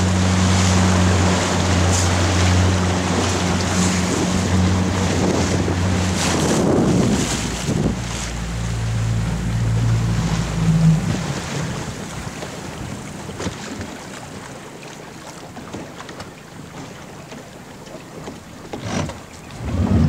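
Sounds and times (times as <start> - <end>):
wind buffeting microphone: 0.0 - 13.7
boat engine running: 0.0 - 20.0
water rushing past hull: 0.0 - 20.0.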